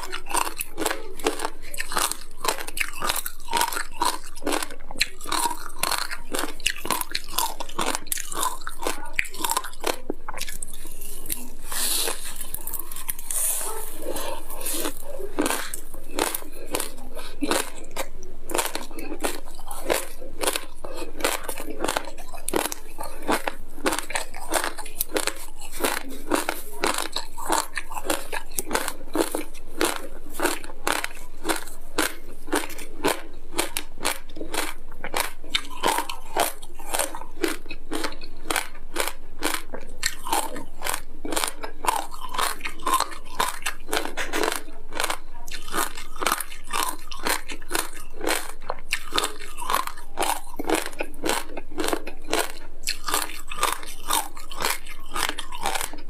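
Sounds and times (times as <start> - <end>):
chewing crunchy frozen fruit: 0.0 - 56.0.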